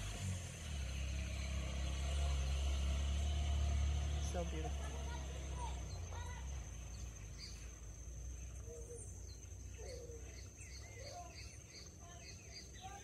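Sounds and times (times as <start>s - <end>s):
birds chirping and whistling: 5.1s - 13.0s.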